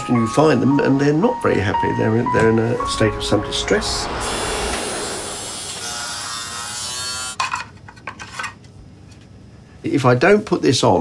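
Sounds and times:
car passing close by: 2.3s - 6.9s.

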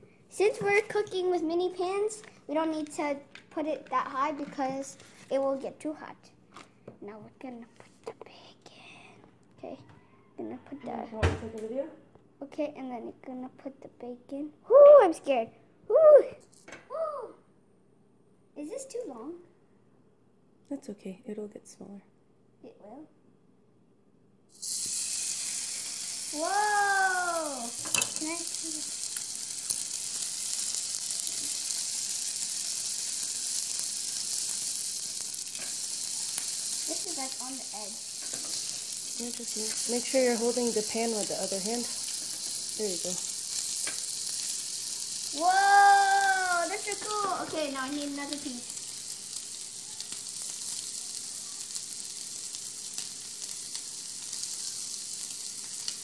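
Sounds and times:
bacon sizzling in a pan: 24.5s - 56.0s.

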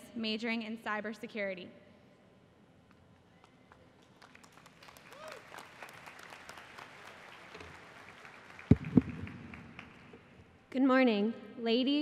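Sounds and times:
audience applauding: 3.7s - 10.4s
loud thump: 8.7s - 9.4s.

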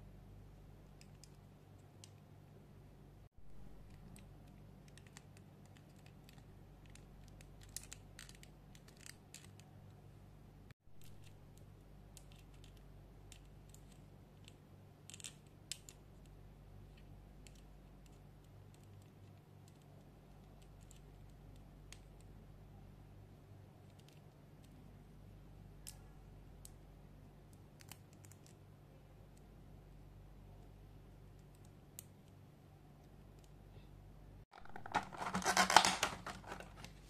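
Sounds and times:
low steady hum: 0.0s - 37.0s
plastic figure joints clicking: 34.6s - 36.9s.

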